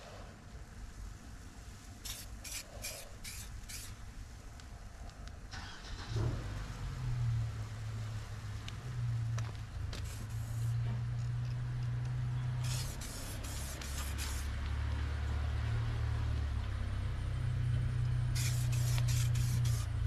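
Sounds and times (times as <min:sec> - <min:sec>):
short air hisses: 0:02.0 - 0:04.0, 0:10.0 - 0:10.8, 0:12.6 - 0:14.6, 0:18.4 - 0:20.0.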